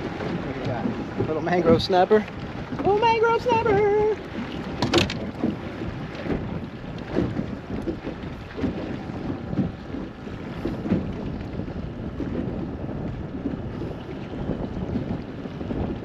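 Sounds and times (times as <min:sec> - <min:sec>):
waves slapping boat hull: 0:00.0 - 0:16.0
wind buffeting microphone: 0:00.0 - 0:16.0.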